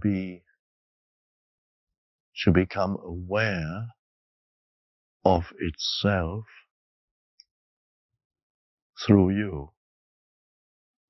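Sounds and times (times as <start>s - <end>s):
man's voice: 0.0s - 0.4s, 2.4s - 3.9s, 5.3s - 6.5s, 9.0s - 9.7s.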